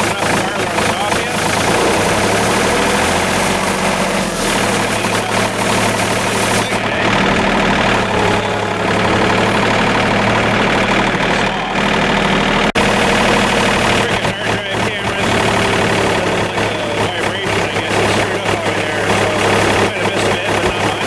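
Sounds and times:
tractor diesel engine running: 0.0 - 21.0
broom brushing snow: 1.7 - 6.8.

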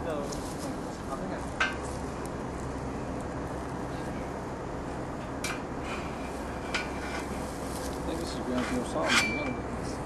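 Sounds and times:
outdoor background noise: 0.0 - 10.0.

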